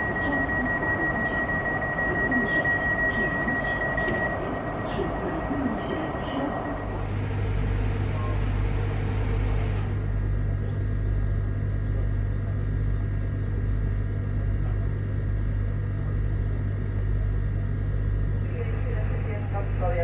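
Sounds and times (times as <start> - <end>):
platform noise: 0.0 - 10.9
train interior hum: 0.0 - 12.0.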